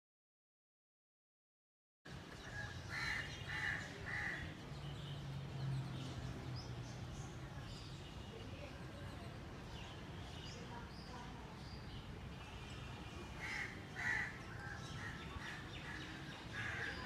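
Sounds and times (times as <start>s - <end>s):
small birds chirping: 2.1s - 17.0s
crow cawing: 2.6s - 4.4s, 13.4s - 15.5s, 16.5s - 17.0s.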